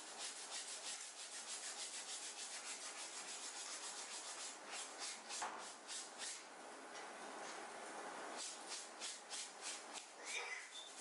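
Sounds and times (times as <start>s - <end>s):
scrubbing on fabric: 0.0s - 6.4s.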